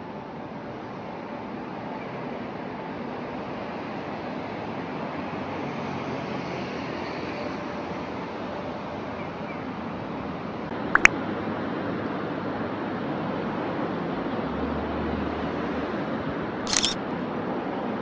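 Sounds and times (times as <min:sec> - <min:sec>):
sharp clicks: 0:16.7 - 0:17.0.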